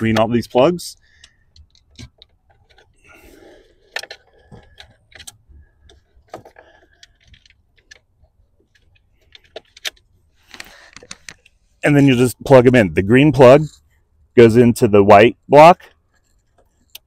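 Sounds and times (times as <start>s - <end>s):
wiring rustling: 0.0s - 12.7s.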